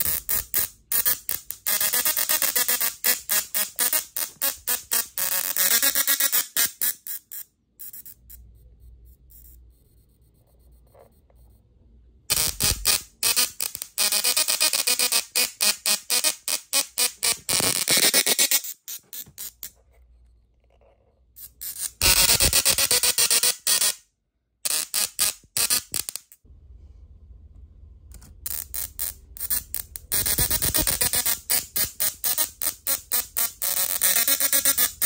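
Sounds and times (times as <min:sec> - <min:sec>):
tesla coil buzzing a tune: 0:00.0 - 0:08.4, 0:12.3 - 0:19.7, 0:21.4 - 0:24.0, 0:28.5 - 0:35.0.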